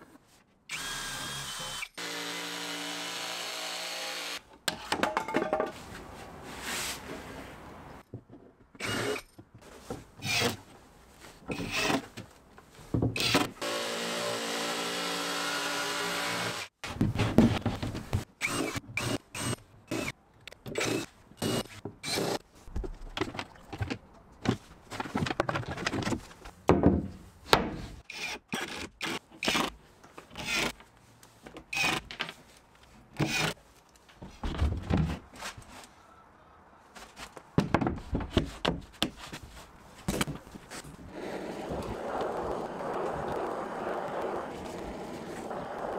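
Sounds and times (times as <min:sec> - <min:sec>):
plywood and tools clattering: 0:04.6 - 0:05.9.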